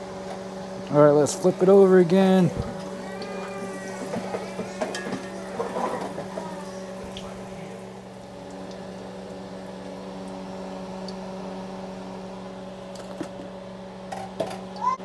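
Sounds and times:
oil sizzling and bubbling: 0:00.0 - 0:15.0
steady low hum: 0:00.0 - 0:15.0
oil dripping into pan: 0:08.1 - 0:11.4.

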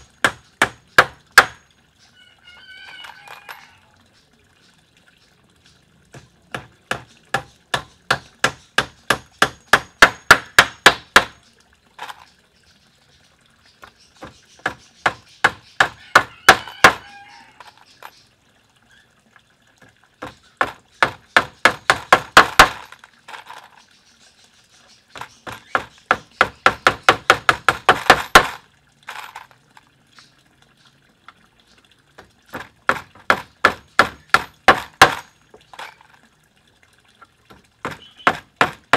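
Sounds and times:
hammer driving nails into wood: 0:20.6 - 0:22.9, 0:25.5 - 0:28.6.

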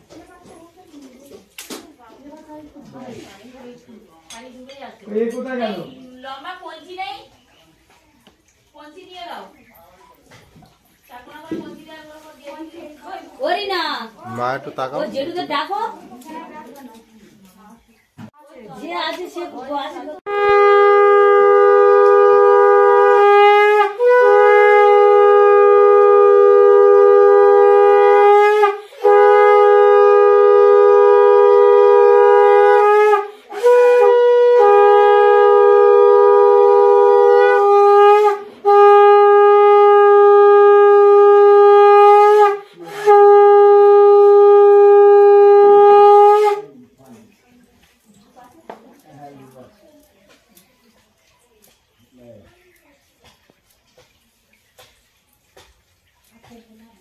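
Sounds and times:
conch shell blasts: 0:20.3 - 0:46.8.

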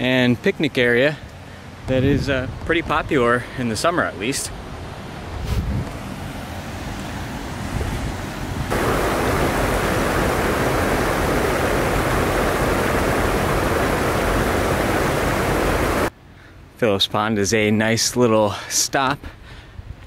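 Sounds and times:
wind noise: 0:01.8 - 0:03.2, 0:05.3 - 0:06.0, 0:07.7 - 0:16.1
water rushing over spillway: 0:08.7 - 0:16.1.

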